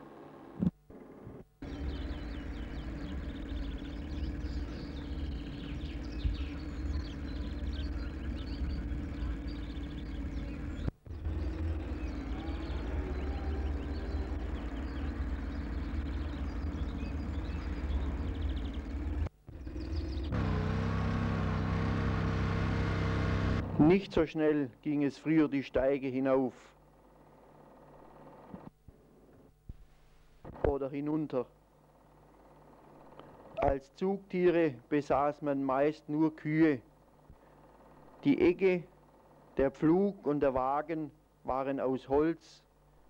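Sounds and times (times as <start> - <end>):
tractor engine rumbling: 0.0 - 24.6, 36.9 - 40.0
birds chirping: 1.6 - 25.3, 30.6 - 42.6.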